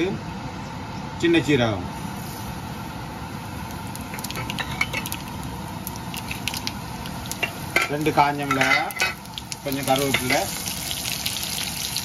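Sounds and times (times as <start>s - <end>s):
seeds sizzling in hot oil: 2.0s - 12.0s
small pops and crackles: 3.7s - 8.0s, 9.2s - 10.2s.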